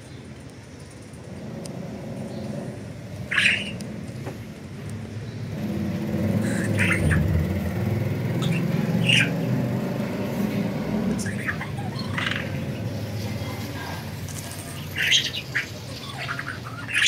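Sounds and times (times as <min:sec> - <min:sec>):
low engine rumble: 0:00.8 - 0:17.0
budgerigar chirping: 0:03.3 - 0:03.8, 0:06.4 - 0:07.6, 0:08.3 - 0:09.5, 0:11.2 - 0:12.8, 0:14.8 - 0:17.0.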